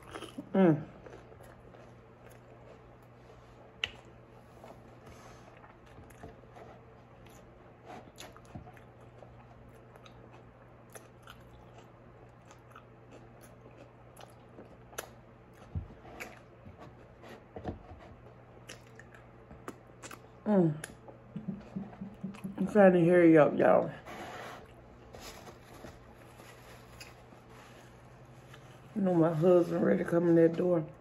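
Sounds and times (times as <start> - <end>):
biting and chewing food: 0.0 - 22.7.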